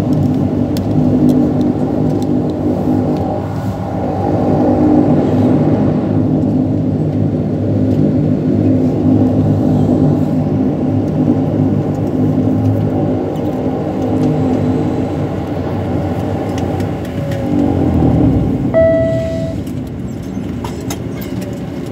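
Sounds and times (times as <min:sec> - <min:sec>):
turboprop engines droning: 0:00.0 - 0:21.9
short single tone: 0:18.8 - 0:19.7.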